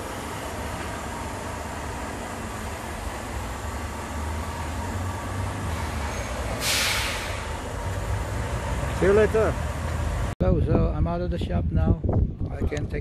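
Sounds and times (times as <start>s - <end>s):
lorry diesel engine rumbling: 0.0s - 10.4s
short loud air hiss: 5.7s - 7.6s.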